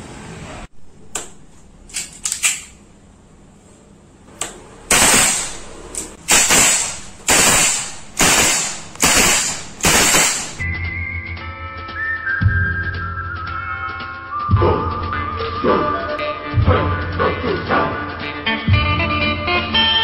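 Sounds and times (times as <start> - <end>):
air pistol shots: 4.9 - 10.6.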